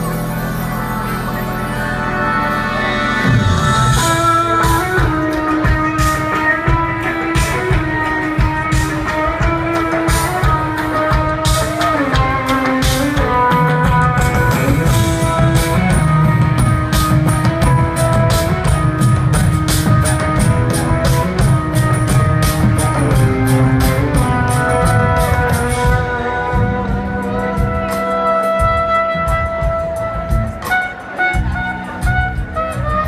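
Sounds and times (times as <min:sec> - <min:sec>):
jazz fusion band playing: 0:00.0 - 0:33.0
drum kit beat: 0:03.2 - 0:33.0.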